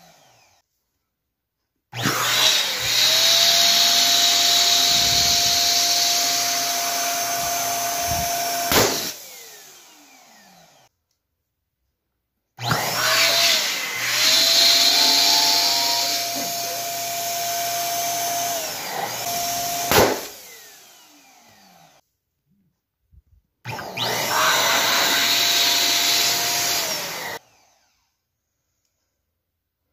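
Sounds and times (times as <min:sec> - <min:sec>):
electric pump whining: 0:02.0 - 0:10.8, 0:12.6 - 0:21.9, 0:23.7 - 0:27.8
balloon bursting: 0:08.7 - 0:09.2, 0:19.8 - 0:20.4.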